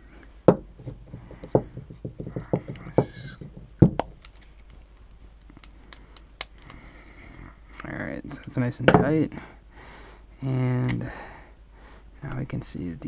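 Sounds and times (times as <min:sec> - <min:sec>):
sharp knocks: 0:00.5 - 0:04.1.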